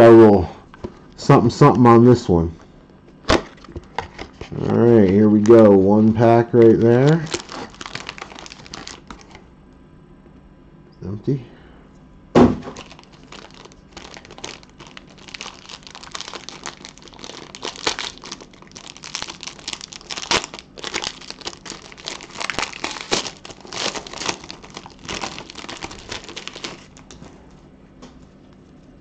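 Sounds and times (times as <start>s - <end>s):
foil wrapper crinkling: 3.6s - 9.4s, 12.6s - 27.4s.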